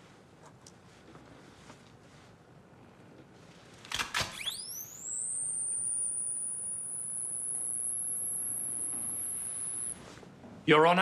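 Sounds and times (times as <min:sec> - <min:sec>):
electronic tone gliding upward: 0:04.4 - 0:10.0.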